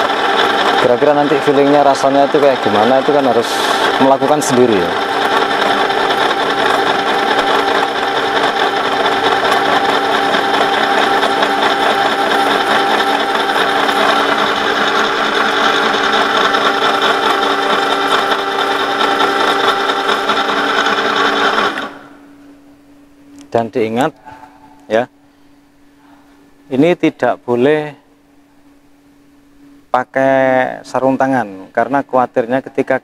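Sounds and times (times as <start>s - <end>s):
milling cutter cutting steel: 0.0s - 22.2s
spindle humming: 0.0s - 31.8s.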